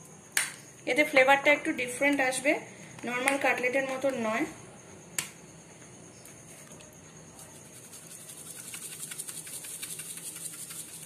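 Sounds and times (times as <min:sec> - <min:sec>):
seasoning rattling from shaker: 0:07.4 - 0:11.0
shaker click: 0:08.5 - 0:11.0.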